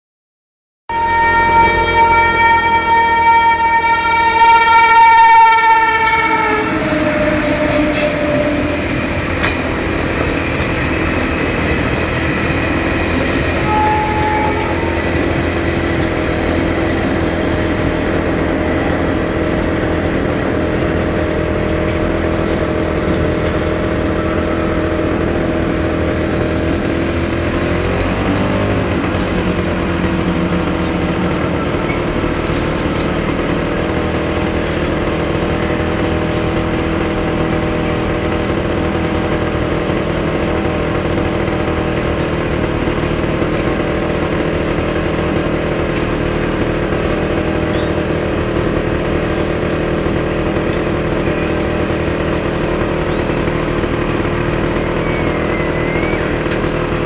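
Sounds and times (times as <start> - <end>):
train horn: 0.9 - 10.8, 11.7 - 31.7
constant drone: 0.9 - 57.0
train wheels rumbling on rail: 0.9 - 57.0.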